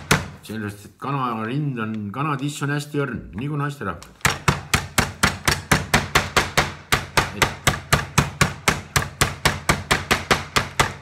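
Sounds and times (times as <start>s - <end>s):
wooden mallet pounding meat: 0.0s - 0.5s, 4.2s - 11.0s.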